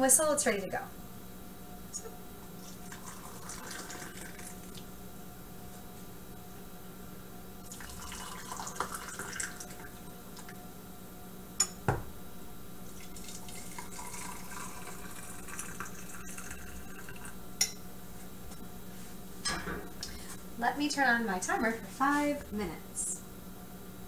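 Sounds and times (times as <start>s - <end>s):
steady low hum: 0.0s - 24.0s
hot water pouring into mugs: 2.7s - 4.9s, 7.6s - 10.5s, 12.9s - 17.4s.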